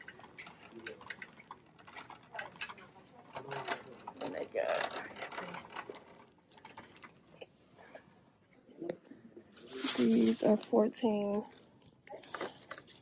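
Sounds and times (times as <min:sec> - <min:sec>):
shopping cart rattling: 0:00.0 - 0:07.0, 0:09.6 - 0:10.7.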